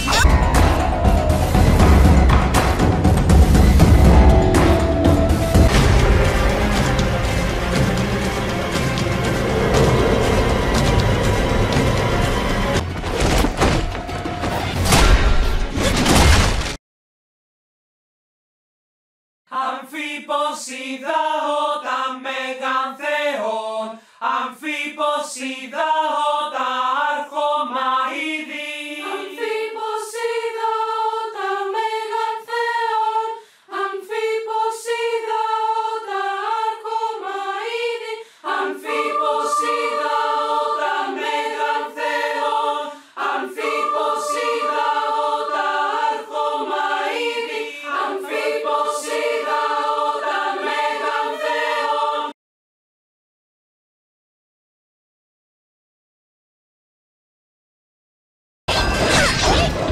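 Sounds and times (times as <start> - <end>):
choir singing: 0.0 - 13.0, 19.5 - 52.4.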